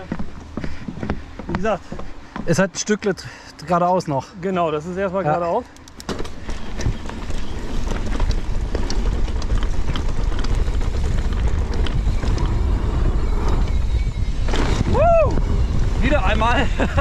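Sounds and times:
bike clicks and rattles: 5.4 - 17.0
bike tyres on dirt trail: 5.5 - 17.0
wind on microphone: 6.6 - 17.0.

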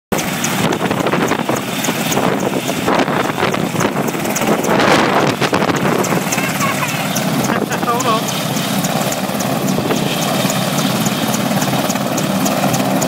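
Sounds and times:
helicopter rotors and engine: 0.1 - 13.0
wind buffeting microphone: 0.2 - 13.0.

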